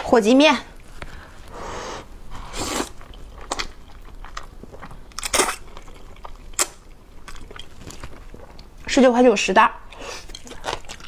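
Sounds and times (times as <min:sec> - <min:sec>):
noodle slurping: 0:01.5 - 0:04.0.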